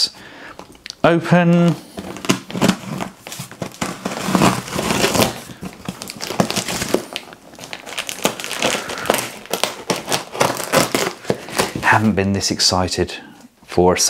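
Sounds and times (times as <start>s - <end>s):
cardboard crackling and scraping: 1.5s - 12.2s
blade slicing packing tape: 8.9s - 11.2s.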